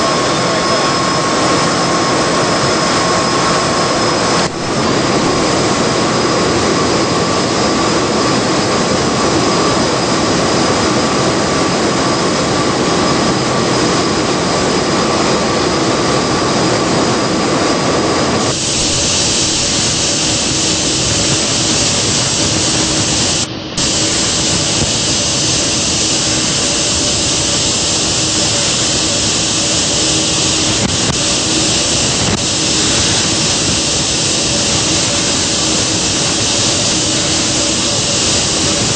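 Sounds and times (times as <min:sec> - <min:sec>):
harsh hiss: 0:00.0 - 0:10.1, 0:18.4 - 0:38.9
large gas engines running: 0:00.0 - 0:38.9.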